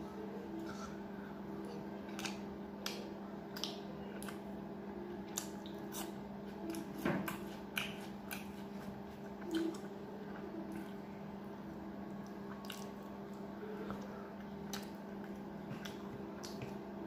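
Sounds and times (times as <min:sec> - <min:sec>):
person chewing and smacking food: 0:01.6 - 0:04.5, 0:05.2 - 0:11.0, 0:12.1 - 0:16.9.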